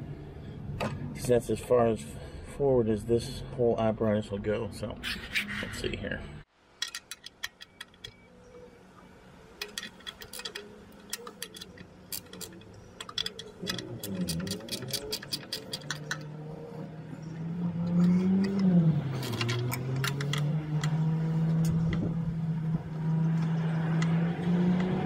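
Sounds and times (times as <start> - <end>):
metallic clicks of hand tools: 6.8 - 8.2, 9.6 - 16.4, 17.8 - 21.0
vehicle engine running: 10.1 - 25.0.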